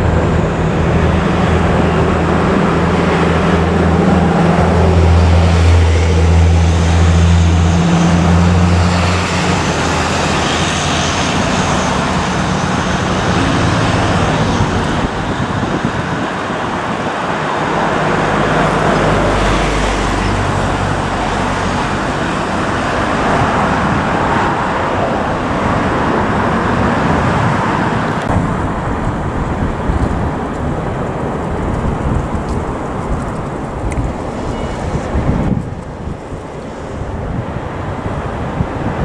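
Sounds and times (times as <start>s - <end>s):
jet engines roaring at takeoff: 0.0s - 39.0s.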